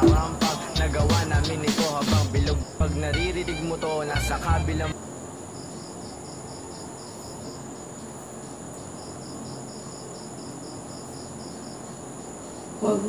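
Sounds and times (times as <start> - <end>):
cricket chirping: 0.0 - 13.0.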